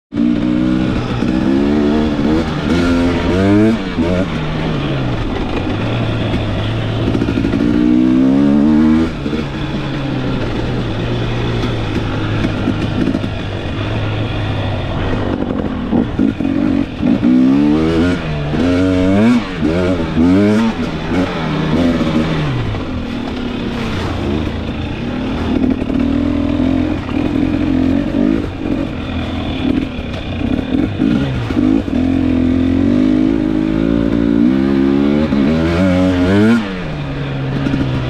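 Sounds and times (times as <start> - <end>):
dirt bike engine revving: 0.1 - 38.0.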